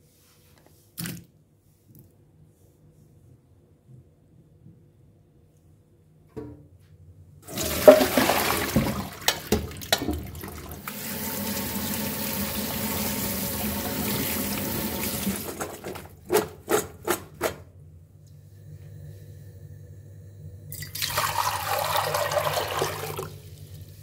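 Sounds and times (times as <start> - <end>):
colander shaking: 7.5 - 10.8, 13.6 - 17.6
tap water running: 7.5 - 16.4, 20.7 - 23.7
water splashing into a steel sink: 7.5 - 16.5, 20.7 - 23.4.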